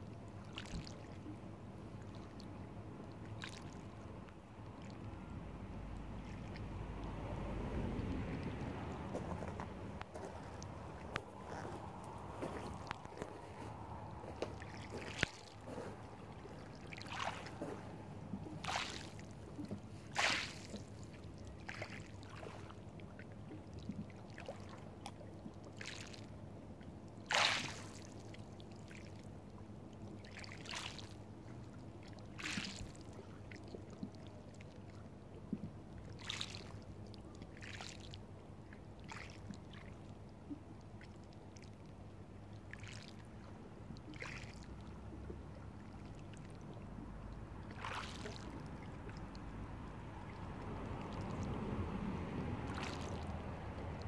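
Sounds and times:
small waves lapping on pebbles: 0.4s - 1.3s, 3.3s - 4.0s, 6.2s - 26.3s, 27.2s - 29.4s, 30.1s - 35.0s, 35.6s - 40.2s, 42.6s - 44.9s, 47.6s - 54.0s.

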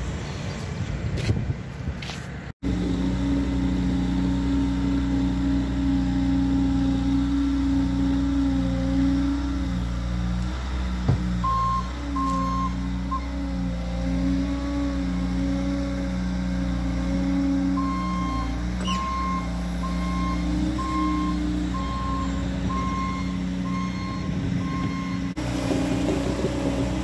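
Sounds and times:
diesel engine running: 0.0s - 27.0s
backup alarm beeping: 11.4s - 13.4s, 17.8s - 25.3s.

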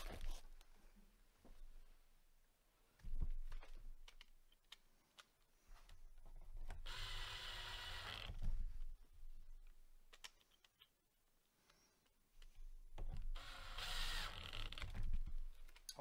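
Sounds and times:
cordless drill driving a screw: 6.8s - 8.3s, 13.4s - 14.8s.

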